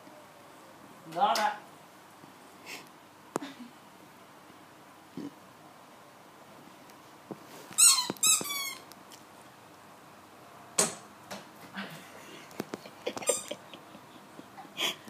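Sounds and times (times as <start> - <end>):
dog toy squeaking: 7.8 - 8.8.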